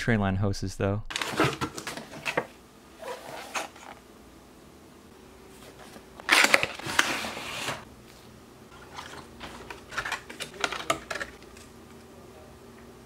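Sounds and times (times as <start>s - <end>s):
plastic tray scraping out of box: 1.1s - 4.0s, 5.8s - 7.8s
plastic clicks and crackles: 9.0s - 11.7s.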